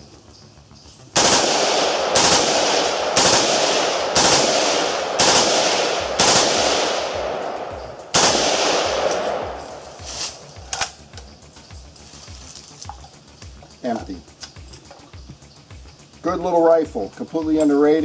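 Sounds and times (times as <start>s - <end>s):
rifle shots with echo: 1.2s - 11.0s.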